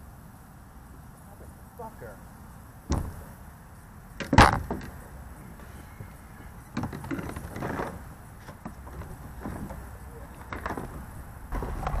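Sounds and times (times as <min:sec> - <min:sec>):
fishing gear rattling in kayak: 0:06.0 - 0:12.0.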